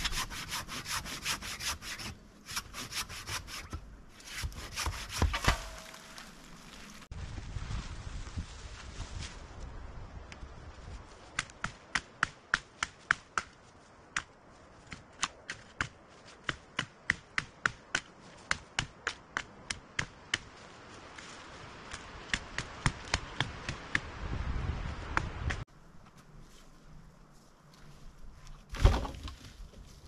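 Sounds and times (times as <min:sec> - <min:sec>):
chopping dead wood: 0:04.4 - 0:06.3.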